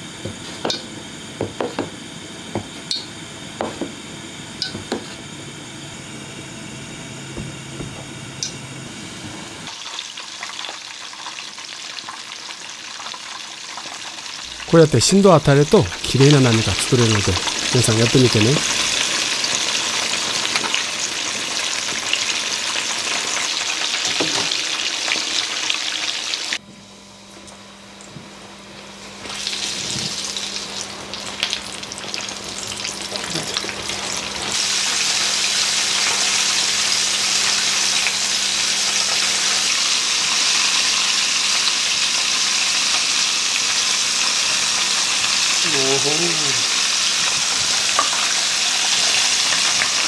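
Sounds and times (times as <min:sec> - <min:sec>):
chicken sizzling in hot oil: 0:08.4 - 0:26.6, 0:29.1 - 0:50.0.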